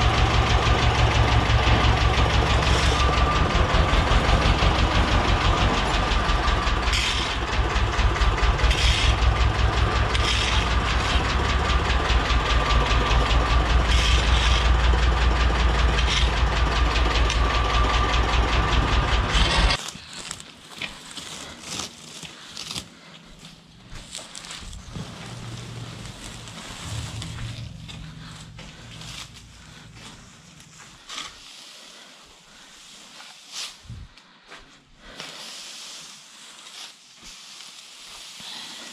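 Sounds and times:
diesel engine throbbing: 0:00.0 - 0:19.8, 0:23.7 - 0:31.1.

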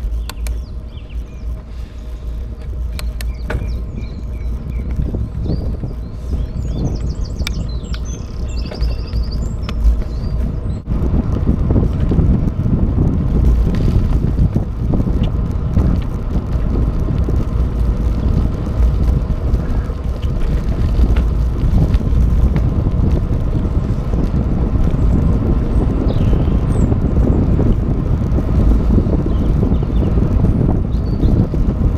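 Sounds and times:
wind buffeting microphone: 0:00.0 - 0:31.9.

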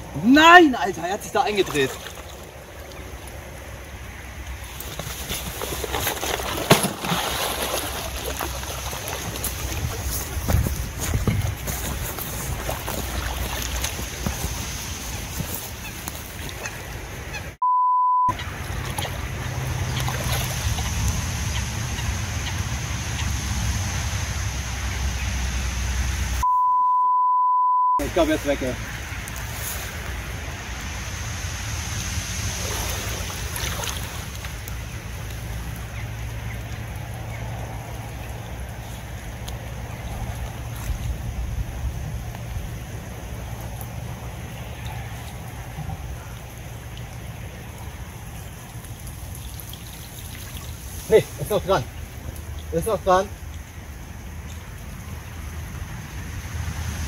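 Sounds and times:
water: 0:00.0 - 0:17.6, 0:18.3 - 0:26.6, 0:28.0 - 0:57.0
wind: 0:00.0 - 0:57.0
wind rumble on microphone: 0:09.0 - 0:17.4
censor bleep: 0:17.6 - 0:18.4, 0:26.4 - 0:28.0.

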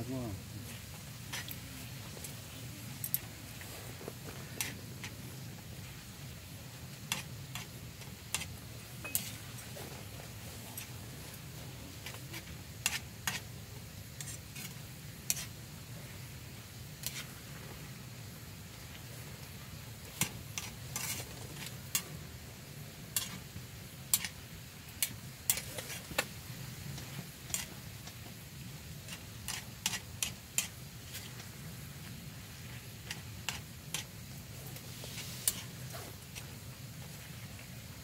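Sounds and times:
food sizzling: 0:00.0 - 0:38.0
utensil scraping a pan: 0:00.7 - 0:02.1, 0:07.1 - 0:13.5, 0:14.2 - 0:15.6, 0:17.0 - 0:17.3, 0:20.1 - 0:22.1, 0:23.2 - 0:23.5, 0:24.1 - 0:24.4, 0:25.0 - 0:26.1, 0:27.0 - 0:27.8, 0:29.0 - 0:31.4, 0:32.7 - 0:36.5.

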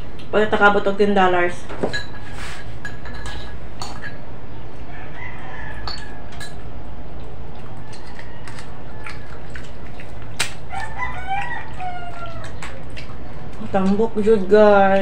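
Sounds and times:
crab shell cracking: 0:07.2 - 0:13.2
chicken clucking: 0:10.7 - 0:12.6.

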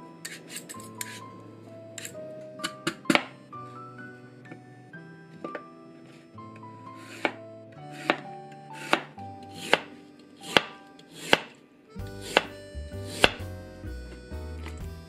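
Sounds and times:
soft background music: 0:00.0 - 0:15.0
knife slicing on cutting board: 0:07.0 - 0:11.5, 0:12.2 - 0:12.5, 0:13.1 - 0:13.4.

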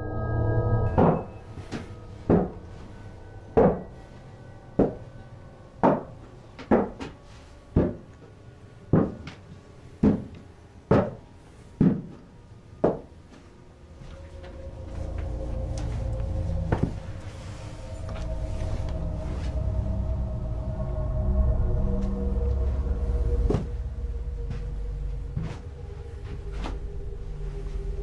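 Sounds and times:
loud ringing knocks: 0:00.8 - 0:04.2.

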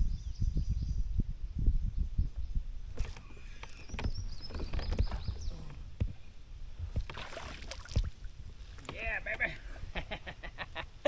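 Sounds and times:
fish splashing: 0:07.0 - 0:08.9.

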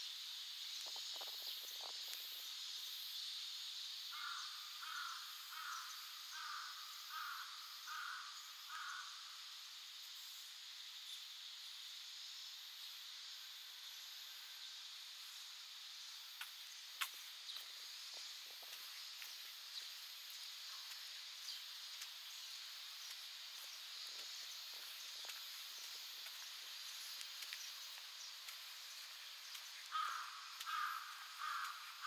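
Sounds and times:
insects hissing: 0:00.0 - 0:32.0
footstep clicks: 0:16.4 - 0:20.0, 0:22.9 - 0:31.8.

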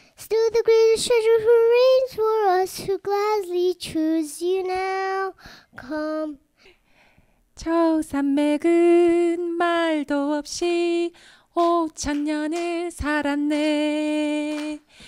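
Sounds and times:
woman singing unaccompanied: 0:07.6 - 0:15.0.

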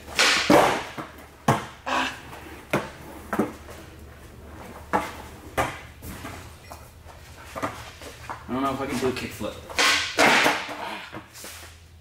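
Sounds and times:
skateboard wheels rolling: 0:00.0 - 0:08.5.

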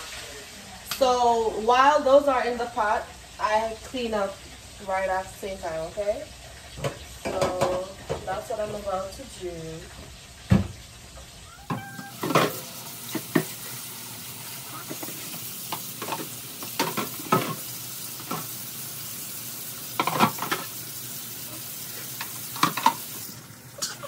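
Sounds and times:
steady water hiss: 0:00.0 - 0:24.0
dishes clattering: 0:11.6 - 0:13.6, 0:14.8 - 0:18.5, 0:20.0 - 0:20.7, 0:22.2 - 0:23.1.

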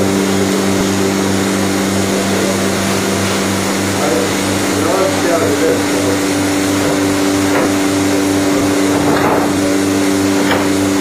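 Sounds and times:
vacuum pump humming and throbbing: 0:00.0 - 0:11.0
wooden panels knocking: 0:06.8 - 0:11.0.

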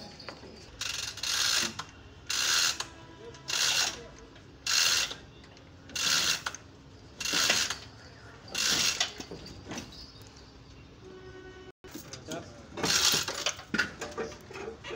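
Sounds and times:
chain hoist chain rattling: 0:00.0 - 0:05.2, 0:05.9 - 0:10.6, 0:12.8 - 0:13.8.

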